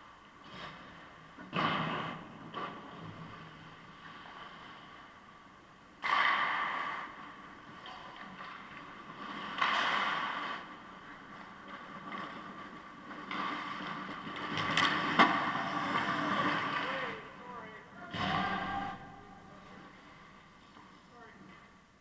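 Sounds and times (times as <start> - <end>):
ice skate blades scraping: 8.4 - 17.0.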